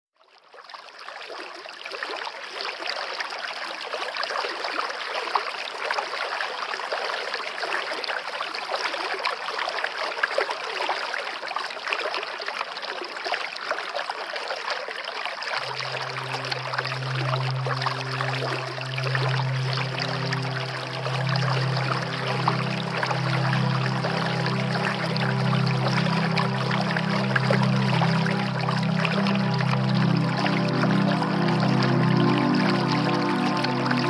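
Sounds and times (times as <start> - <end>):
running water: 0.4 - 34.0
low held musical note: 15.6 - 34.0.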